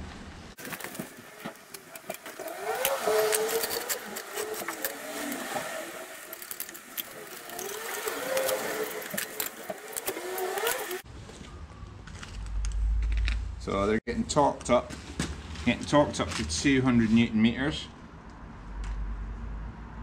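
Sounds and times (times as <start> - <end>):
trolley jack squeaking: 0.6 - 11.0.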